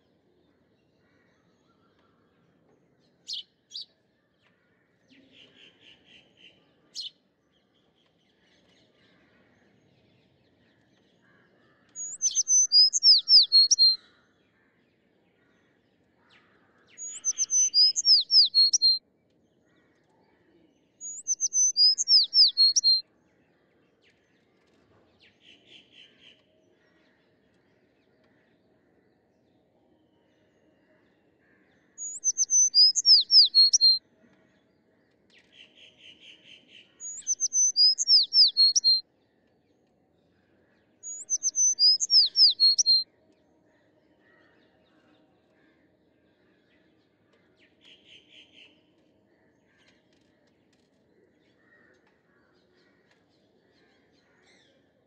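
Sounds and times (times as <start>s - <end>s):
fast bird trills: 17.0s - 19.0s, 32.0s - 34.0s, 37.1s - 39.0s, 41.1s - 43.0s
songbird whistled phrase: 21.1s - 23.0s, 37.0s - 39.0s.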